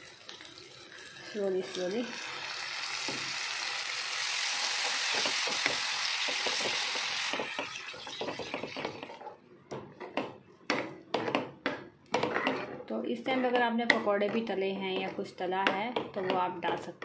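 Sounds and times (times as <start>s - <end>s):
yogurt sizzling in a pan: 0.0s - 9.2s
metal spoon scraping a pan: 12.1s - 17.0s.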